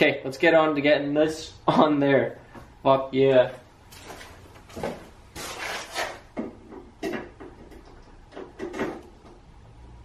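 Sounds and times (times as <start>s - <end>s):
parts clunking and scraping: 3.9s - 9.4s.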